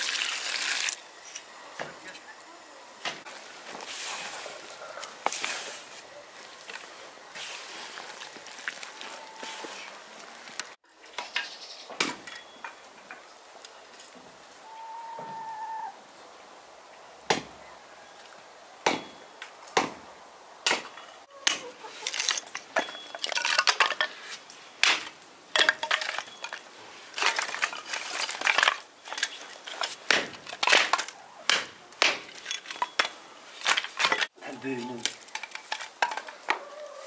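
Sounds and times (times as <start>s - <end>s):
hatchet striking kindling: 18.8s - 19.2s, 30.0s - 34.3s
wood cracking apart: 24.8s - 33.0s.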